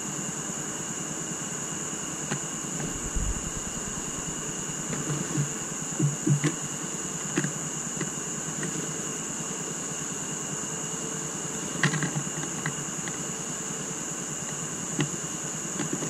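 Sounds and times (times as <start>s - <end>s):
steady hiss: 2.7s - 6.9s
thin high whine: 2.8s - 6.6s.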